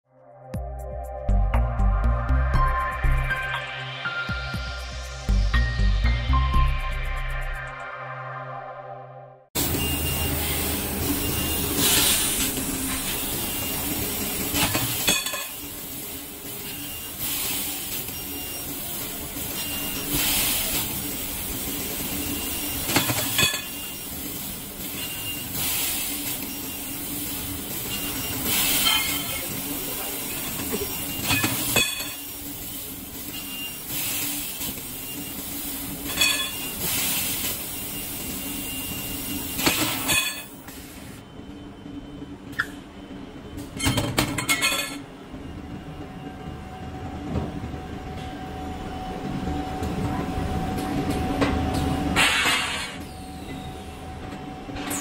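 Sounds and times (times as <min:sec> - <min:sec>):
hiss of assist gas: 0:15.7 - 0:18.2, 0:19.4 - 0:22.8, 0:24.0 - 0:31.3, 0:32.3 - 0:36.0, 0:36.7 - 0:39.8.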